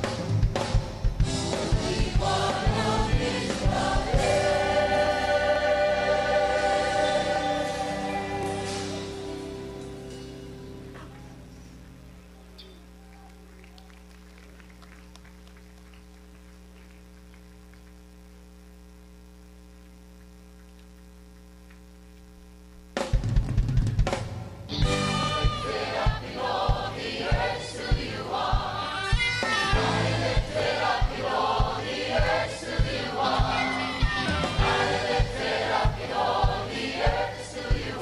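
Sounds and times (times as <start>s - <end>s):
band with drum kit: 0.0s - 11.4s, 23.0s - 38.0s
low steady hum: 0.0s - 38.0s
choir singing gospel song: 1.2s - 10.2s, 24.8s - 38.0s.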